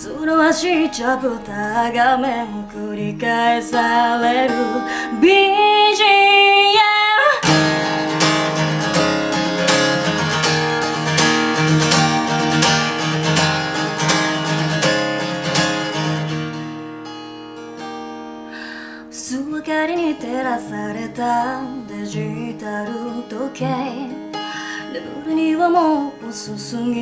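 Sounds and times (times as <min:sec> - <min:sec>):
woman singing: 0:00.0 - 0:07.9, 0:19.0 - 0:27.0
acoustic guitar strumming: 0:00.0 - 0:27.0.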